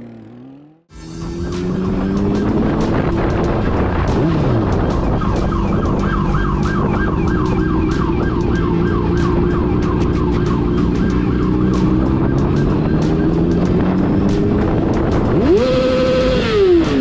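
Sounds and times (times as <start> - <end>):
road vehicle engine noise: 0.0 - 17.0
siren yelping: 4.5 - 14.8.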